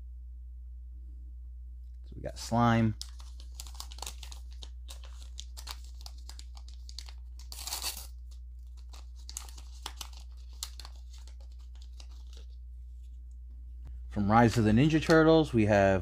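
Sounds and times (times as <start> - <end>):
plastic packaging crinkling and tearing: 3.0 - 12.6.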